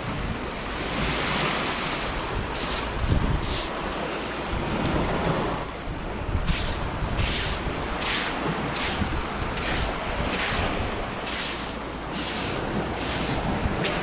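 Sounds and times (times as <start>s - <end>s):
surf: 0.0s - 14.0s
wind buffeting microphone: 0.0s - 14.0s
scratchy hiss: 11.2s - 14.0s.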